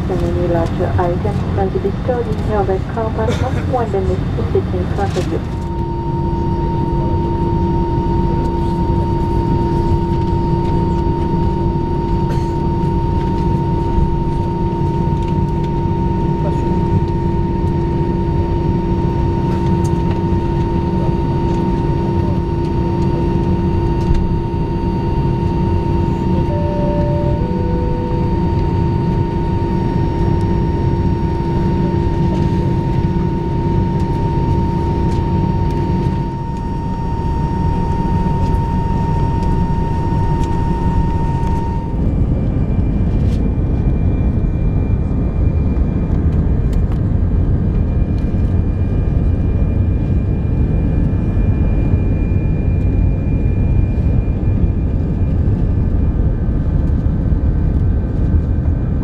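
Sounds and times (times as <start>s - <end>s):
thin steady whine: 0.0s - 57.4s
aircraft cabin rumble: 0.0s - 59.0s
two-tone cabin chime: 26.4s - 42.0s.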